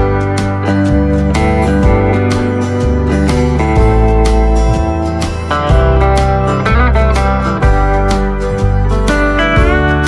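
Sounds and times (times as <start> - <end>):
instrumental melody: 0.0 - 10.0
low bass line: 0.0 - 10.0.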